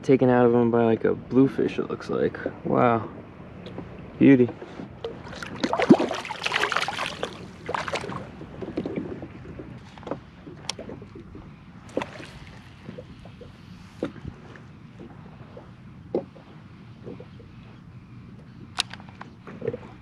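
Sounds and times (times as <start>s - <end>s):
water sloshing against kayak: 2.3s - 20.0s
water splashing beside kayak: 3.6s - 17.8s.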